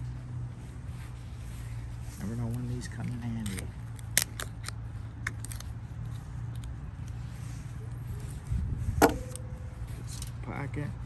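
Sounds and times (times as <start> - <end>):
low hum: 8.9 - 10.2.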